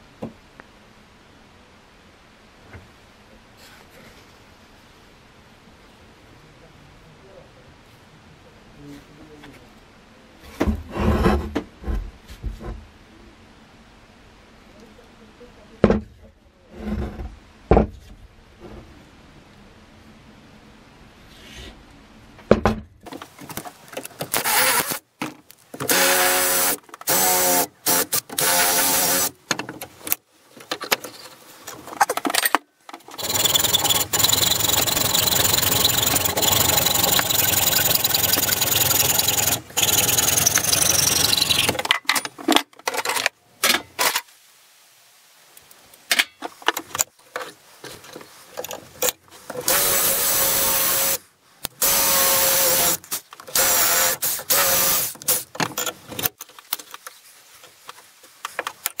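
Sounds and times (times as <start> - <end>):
electric drill boring wood: 24.4 - 25.0, 25.9 - 29.3, 33.1 - 41.8, 49.6 - 51.2, 51.8 - 55.4
power saw cutting wood: 24.4 - 25.0, 25.8 - 29.4, 33.1 - 41.8, 49.6 - 51.2, 51.8 - 55.4.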